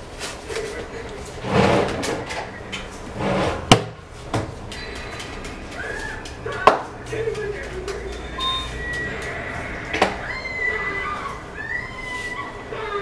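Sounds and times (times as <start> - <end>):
rustling and shuffling: 0.0 - 9.9.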